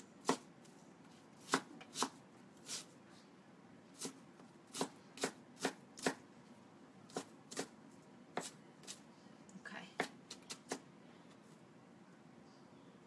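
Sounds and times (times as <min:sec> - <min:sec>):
knife chopping on wooden board: 0:01.4 - 0:02.8, 0:04.0 - 0:06.2.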